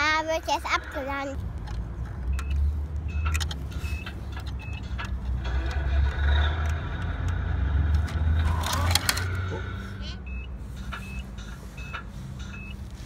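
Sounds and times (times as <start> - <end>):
scattered clicks: 1.3 - 9.5
plastic toy tyres rumbling and scraping: 3.5 - 10.0.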